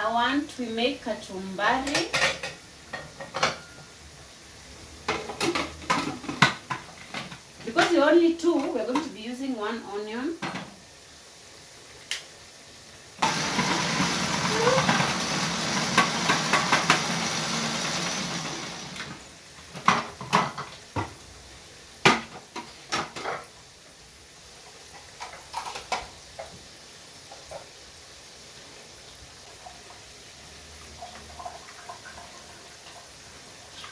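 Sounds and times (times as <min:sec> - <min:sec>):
food processor motor running: 0:13.2 - 0:19.2.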